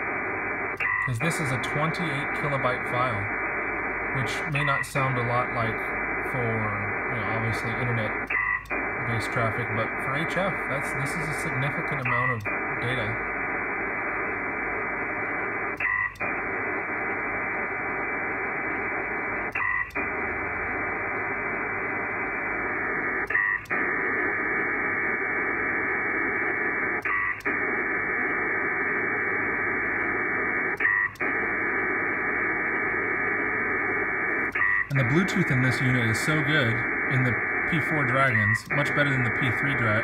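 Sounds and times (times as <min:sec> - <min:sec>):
data signal hiss: 0:00.0 - 0:40.0
short data burst: 0:00.0 - 0:40.0.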